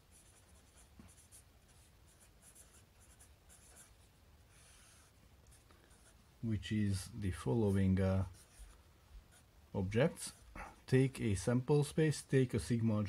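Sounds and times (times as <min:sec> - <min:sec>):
marker scratching on paper: 0:00.0 - 0:06.2, 0:07.6 - 0:09.5.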